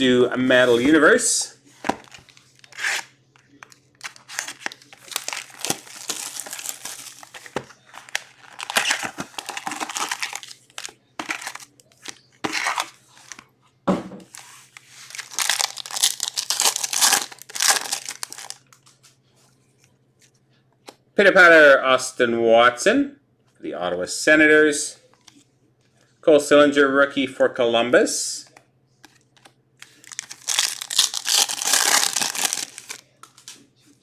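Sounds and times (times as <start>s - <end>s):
card wrappers tearing and crinkling: 1.8s - 13.4s, 14.3s - 18.6s, 29.8s - 33.5s.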